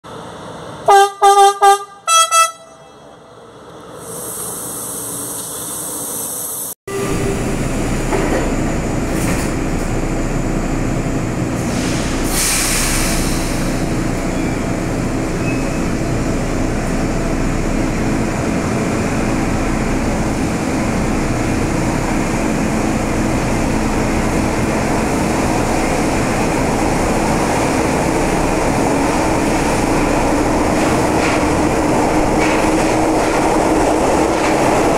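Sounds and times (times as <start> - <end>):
metro train running rumble: 0.0 - 34.9
train horn blasts: 0.8 - 3.3.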